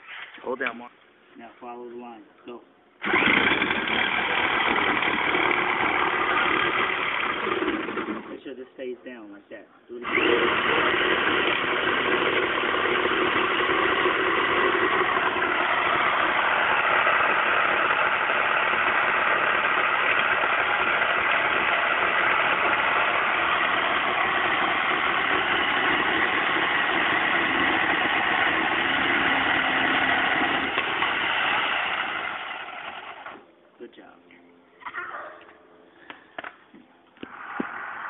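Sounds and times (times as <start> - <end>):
electric jigsaw cutting wood: 3.0 - 8.4, 10.0 - 33.4.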